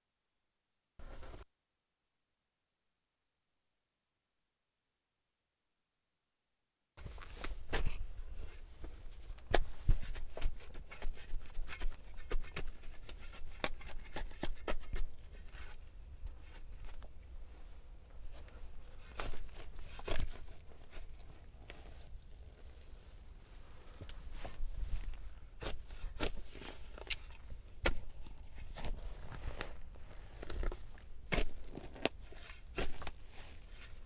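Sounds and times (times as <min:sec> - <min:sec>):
shovel chopping and scraping soil: 0:09.5 - 0:15.1, 0:19.0 - 0:21.0, 0:25.6 - 0:34.0
roots and grass torn out: 0:25.1 - 0:33.5.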